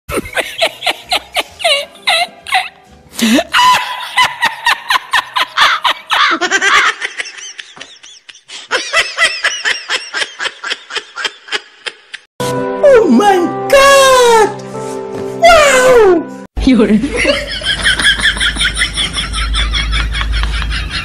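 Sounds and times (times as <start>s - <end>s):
music: 0.1s - 4.3s, 12.4s - 17.2s
comedic laughter sound effect: 0.1s - 12.3s, 17.2s - 21.0s.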